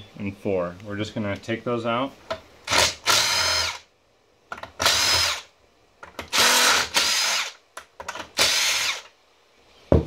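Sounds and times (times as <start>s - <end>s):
cordless drill running: 2.7s - 3.8s, 4.8s - 5.5s, 6.3s - 7.6s, 8.4s - 9.1s.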